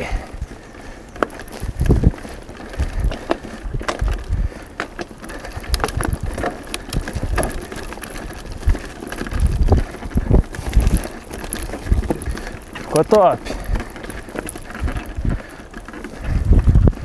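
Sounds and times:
bike rattling and clicking: 0.0s - 17.0s
tyres crunching over dirt and leaves: 0.0s - 17.0s.

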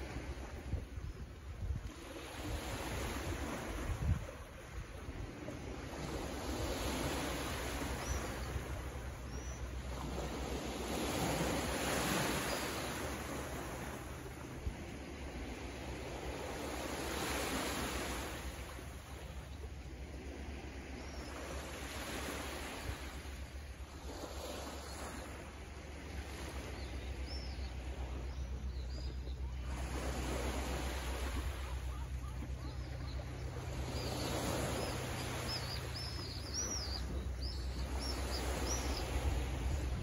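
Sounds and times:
waves lapping on rocky shore: 0.0s - 40.0s
low steady hum: 25.3s - 40.0s
bird chirping: 31.9s - 39.2s.

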